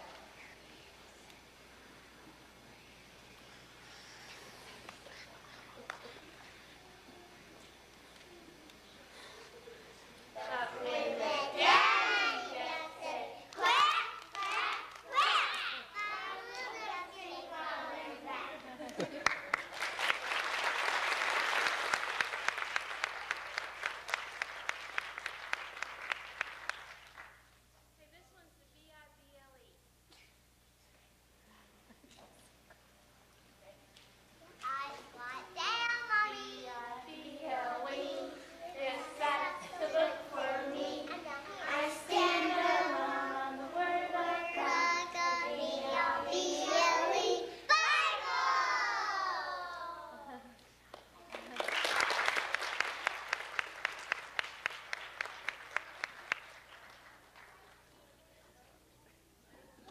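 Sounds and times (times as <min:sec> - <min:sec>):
hand claps: 0:05.8 - 0:06.2, 0:18.9 - 0:27.4, 0:50.9 - 0:57.8
children singing together: 0:10.4 - 0:18.3, 0:36.2 - 0:49.8
audience applause: 0:19.0 - 0:27.4, 0:51.2 - 0:57.9.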